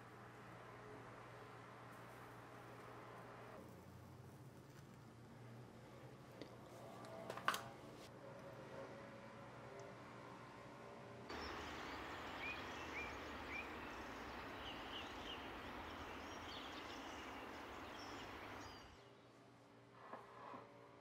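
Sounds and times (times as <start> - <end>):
steady hiss: 11.3 - 18.9
small birds chirping: 11.3 - 19.2.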